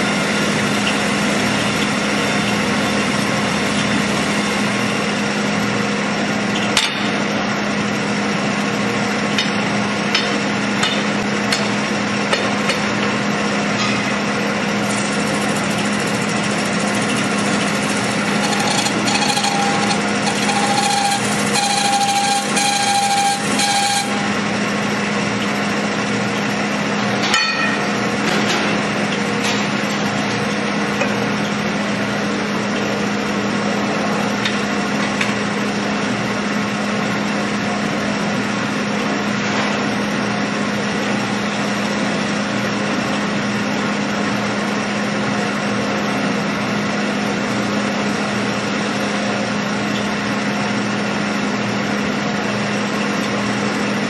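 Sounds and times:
lathe humming: 0:14.8 - 0:24.8
tool squealing on metal: 0:15.6 - 0:24.4.

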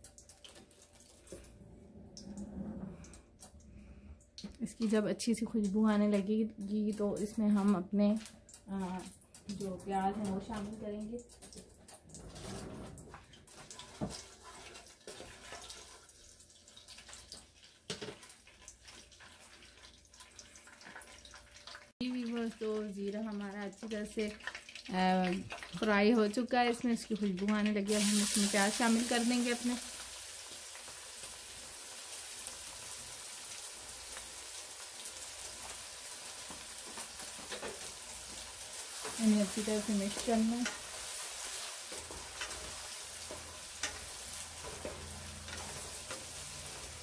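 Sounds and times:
seeds sizzling in hot oil: 0:13.7 - 0:47.0.

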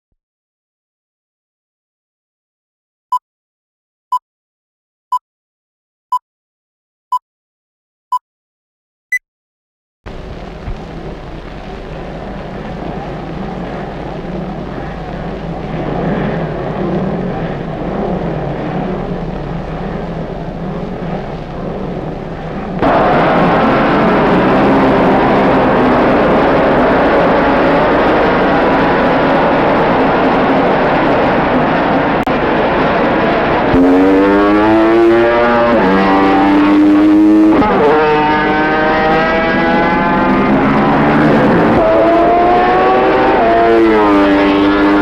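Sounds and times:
racing motorcycle engines: 0:10.1 - 0:45.0.

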